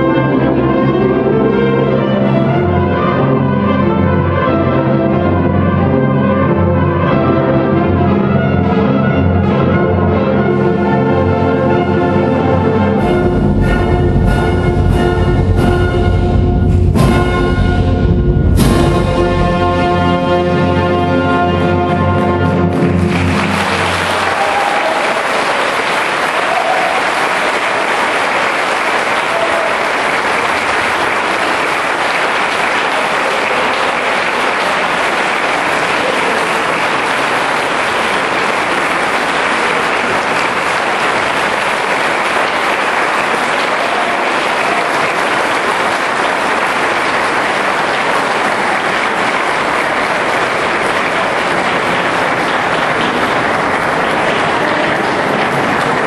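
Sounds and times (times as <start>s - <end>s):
audience applauding: 21.1s - 56.0s.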